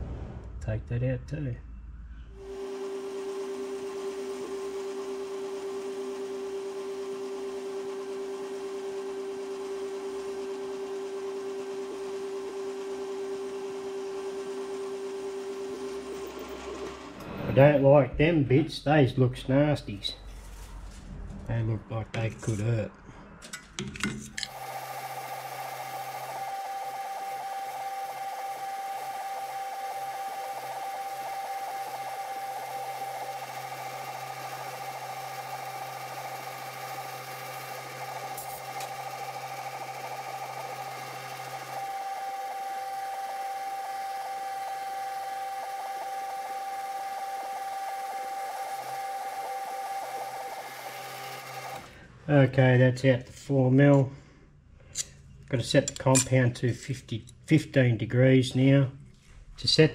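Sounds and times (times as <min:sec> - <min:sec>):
metal lathe whining: 0:02.4 - 0:17.8, 0:24.4 - 0:52.0
tool cutting into steel: 0:37.7 - 0:43.0.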